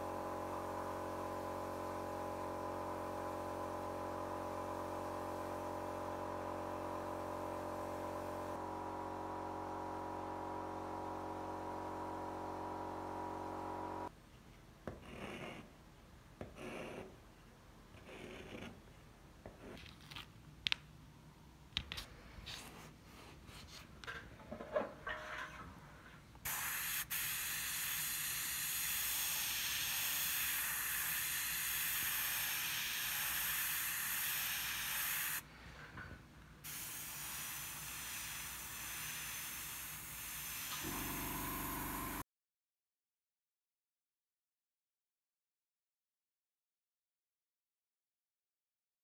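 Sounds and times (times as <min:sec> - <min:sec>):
chalk scratching on wall: 0:14.9 - 0:15.8, 0:16.4 - 0:17.2, 0:17.9 - 0:18.8
airbrush spraying hiss: 0:26.5 - 0:35.4, 0:36.6 - 0:42.2.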